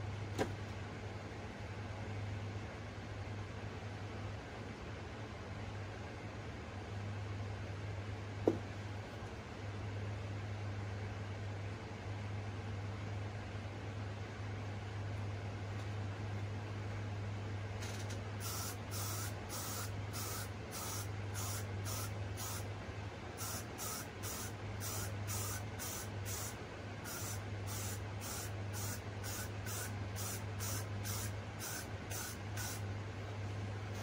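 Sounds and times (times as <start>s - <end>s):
steady low hum: 0.0s - 34.0s
hairspray puffs: 18.4s - 22.6s, 23.4s - 32.8s.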